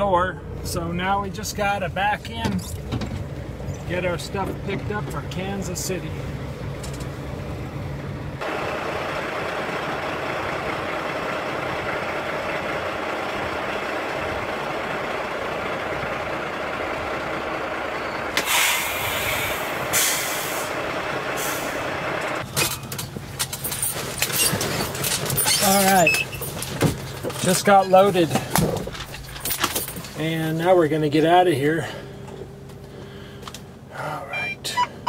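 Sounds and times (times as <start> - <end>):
diesel truck engine running: 0.0 - 35.0
air brake hisses: 18.4 - 20.8, 21.4 - 21.8.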